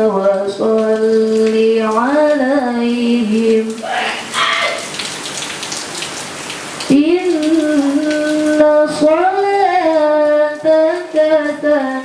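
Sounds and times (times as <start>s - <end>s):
girl reciting melodically: 0.0s - 4.8s, 6.9s - 12.0s
even hiss: 3.5s - 5.1s.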